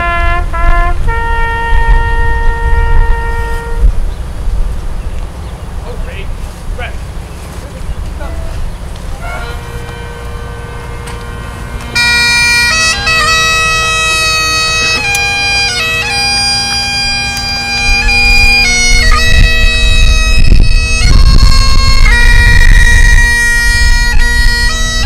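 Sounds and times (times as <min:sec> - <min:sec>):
bagpipe chanter melody: 0:00.0 - 0:04.0, 0:09.1 - 0:25.0
bagpipe drones: 0:00.0 - 0:04.0, 0:08.9 - 0:25.0.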